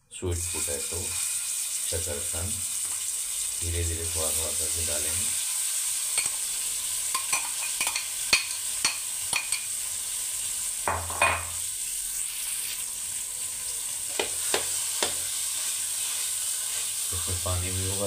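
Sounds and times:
food sizzling in a frying pan: 0.2s - 18.0s
metal spatula scraping and knocking pan: 14.1s - 15.2s.

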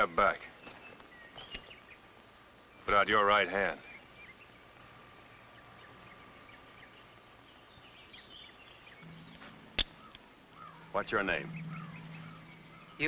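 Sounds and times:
faint steady tone: 0.0s - 13.0s
small bird chirps: 0.6s - 2.0s, 5.3s - 13.0s
sharp click: 9.8s - 10.2s.

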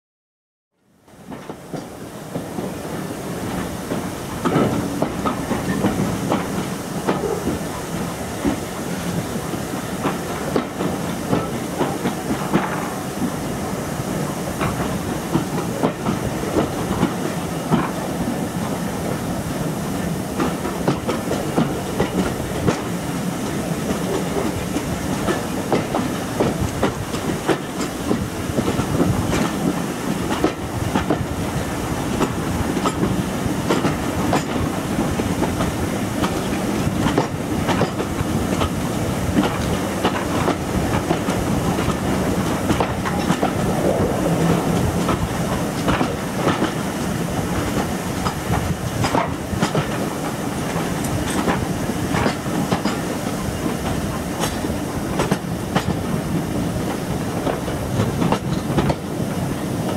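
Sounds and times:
train rumble and hiss: 0.9s - 59.9s
wheels clicking over rail joints: 10.0s - 13.3s, 32.1s - 59.1s.

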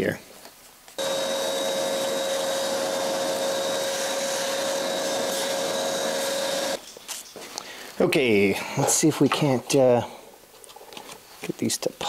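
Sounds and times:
nozzle sucking debris: 1.0s - 6.8s
vacuum cleaner whining: 1.0s - 6.8s.

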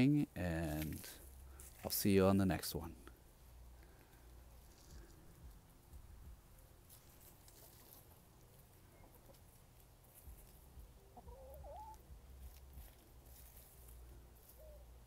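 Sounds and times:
faint hens foraging: 0.0s - 15.0s
hen call: 11.1s - 12.0s.

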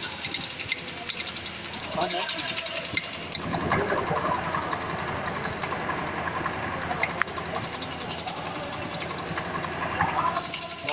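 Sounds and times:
scooter engine running: 0.0s - 10.9s.

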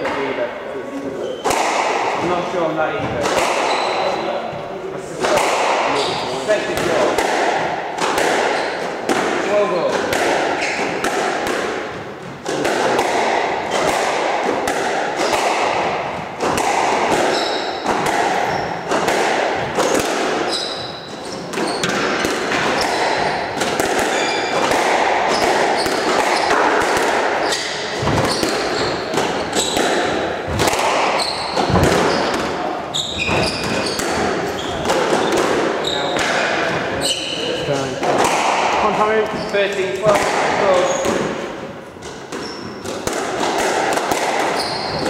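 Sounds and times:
shoes squeaking on wooden floor: 0.8s - 1.5s, 3.0s - 4.8s, 5.9s - 7.0s, 8.5s - 9.1s, 9.7s - 11.0s, 16.0s - 26.7s, 27.4s - 38.0s, 40.6s - 41.4s, 42.0s - 43.0s, 44.4s - 45.0s
squash ball struck by rackets: 1.4s - 37.0s, 37.9s - 45.0s
ball smacking off walls: 21.5s - 32.6s.

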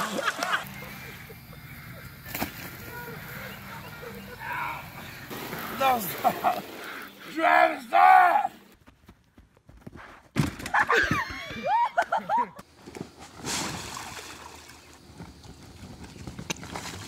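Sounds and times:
water splashing on pool slide: 0.0s - 0.7s, 13.4s - 15.0s
people shouting: 2.8s - 5.2s, 7.1s - 8.7s.

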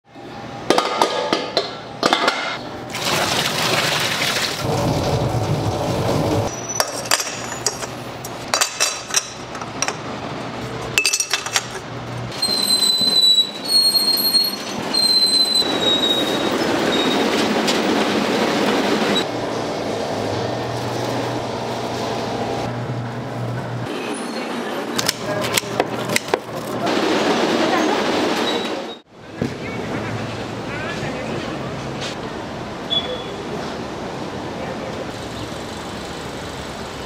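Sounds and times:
utensils and dishes clinking: 6.5s - 11.9s.

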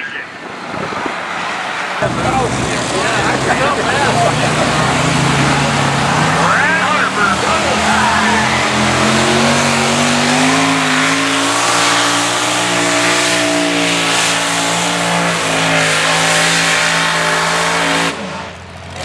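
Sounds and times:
tractor engines roaring under load: 0.0s - 19.0s.

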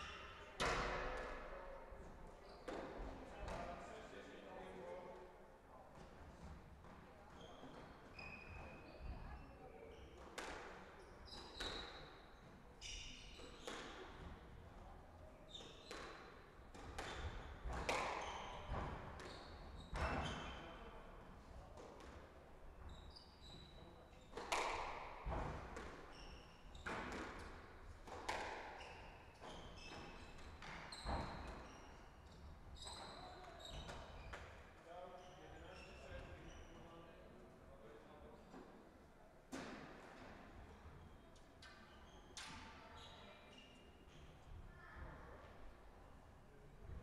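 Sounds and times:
squash ball hitting rackets and walls: 13.4s - 14.4s, 15.7s - 20.3s, 24.3s - 26.1s, 26.8s - 28.8s.

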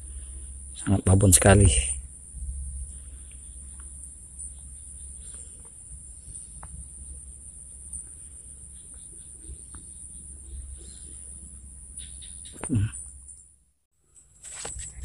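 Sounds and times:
low rumble on microphone: 0.0s - 12.0s
high-pitched insect chorus: 0.0s - 13.5s.

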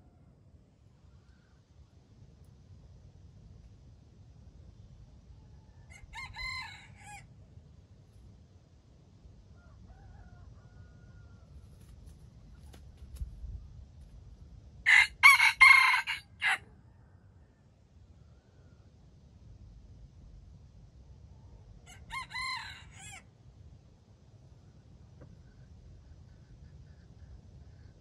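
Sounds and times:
rooster crowing: 5.8s - 7.3s, 9.6s - 11.6s, 14.9s - 16.7s, 21.8s - 23.3s.

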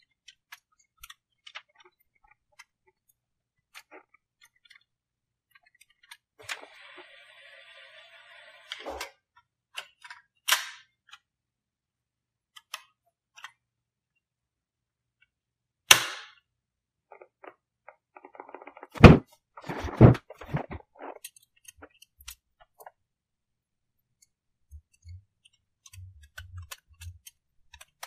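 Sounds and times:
loud thumps: 18.4s - 21.1s.

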